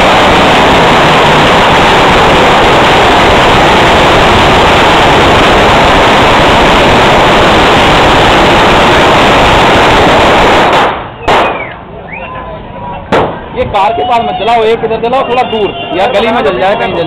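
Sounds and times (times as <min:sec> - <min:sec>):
firecrackers crackling: 0:00.0 - 0:12.2, 0:12.9 - 0:17.0
sharp bang: 0:10.4 - 0:11.8, 0:13.1 - 0:13.6.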